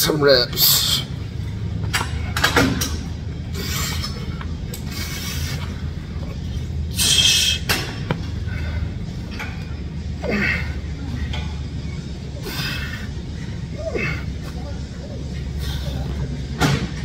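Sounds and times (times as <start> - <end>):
low hum of gym: 0.0 - 17.0.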